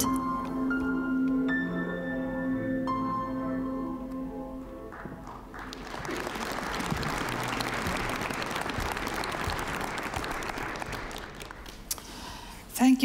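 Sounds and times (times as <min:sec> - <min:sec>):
audience applauding: 0:04.9 - 0:12.2.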